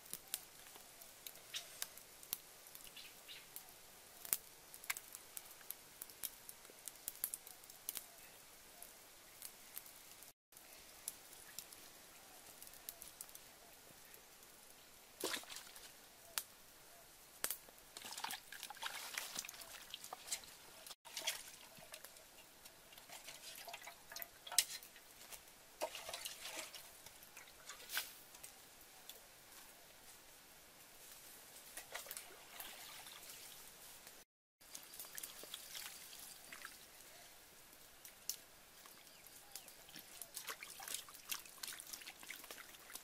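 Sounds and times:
water splashing in metal pot: 18.0s - 20.5s, 21.1s - 22.2s, 22.9s - 25.1s, 25.8s - 27.9s, 31.8s - 33.6s, 40.3s - 43.0s.

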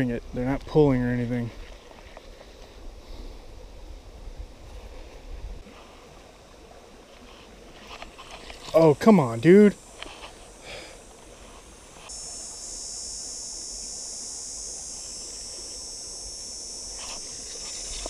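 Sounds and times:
high-pitched insect drone: 8.0s - 18.0s.

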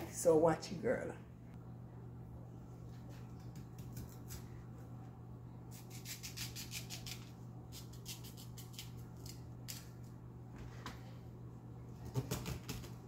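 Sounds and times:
low hum: 0.0s - 12.0s
knife scraping potato skin: 5.7s - 9.9s.

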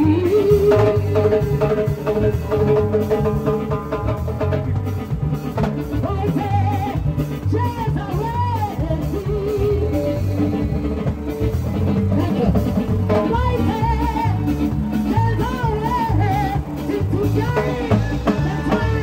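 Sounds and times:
woman singing: 0.0s - 2.8s, 5.9s - 19.0s
bass and drum beat: 0.0s - 19.0s
gospel band music: 0.0s - 19.0s.

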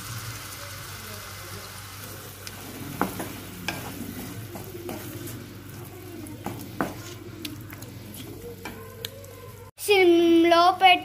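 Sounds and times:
food sizzling in a pan: 0.0s - 9.7s
spatula scraping a pan: 2.5s - 9.0s.

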